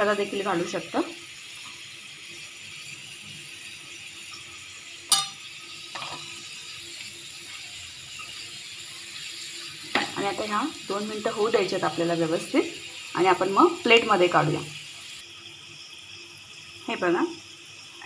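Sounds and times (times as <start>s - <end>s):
potatoes sizzling in oil: 0.0s - 18.0s
spoon clinking against pan: 5.1s - 6.3s.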